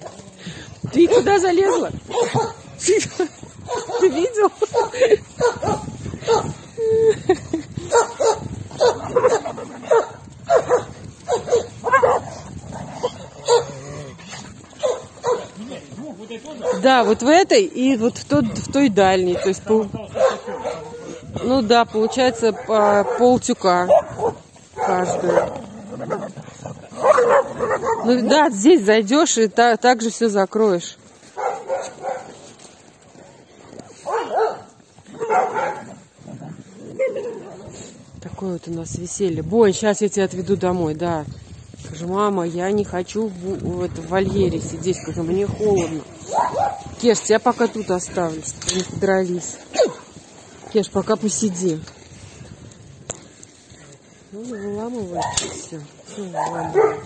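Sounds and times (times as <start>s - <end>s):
dogs barking and yelping: 0.0s - 15.9s, 16.5s - 17.5s, 19.2s - 28.6s, 31.2s - 38.0s, 45.4s - 48.0s, 49.6s - 50.8s, 53.8s - 57.0s.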